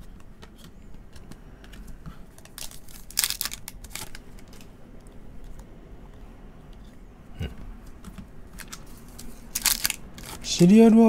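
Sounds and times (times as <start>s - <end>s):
card pack wrapper crinkling: 2.3s - 4.7s, 8.6s - 10.4s.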